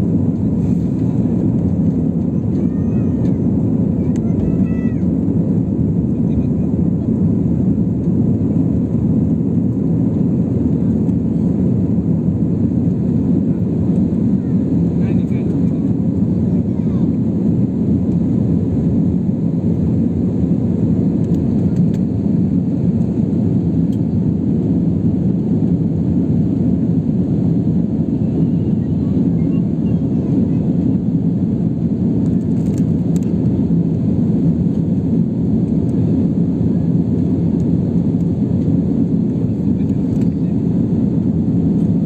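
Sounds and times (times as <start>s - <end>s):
jet engines roaring in cabin: 0.0s - 42.0s.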